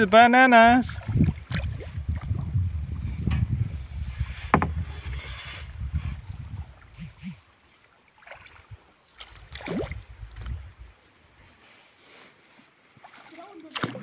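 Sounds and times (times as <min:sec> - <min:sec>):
wind against microphone: 0:00.6 - 0:07.6, 0:08.4 - 0:11.6
low rumble of water: 0:00.7 - 0:11.4.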